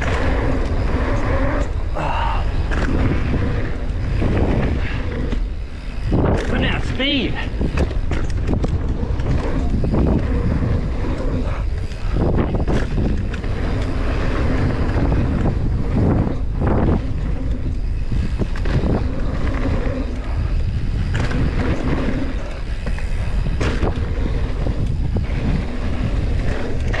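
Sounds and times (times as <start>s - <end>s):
bike tyres rolling on dirt: 0.0s - 27.0s
wind rush on microphone: 0.0s - 27.0s
bike landing thuds: 22.8s - 24.2s.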